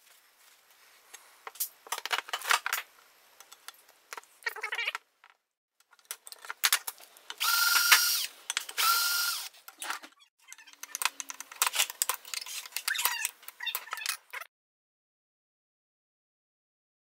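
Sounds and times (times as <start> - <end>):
small metal parts clattering: 5.9 - 7.0, 9.7 - 14.4
electric screwdriver whining: 7.4 - 9.5.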